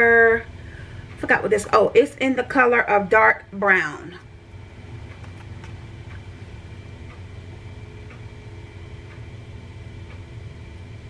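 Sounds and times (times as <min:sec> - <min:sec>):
low hum: 0:00.0 - 0:11.0
faint ticking: 0:03.8 - 0:11.0.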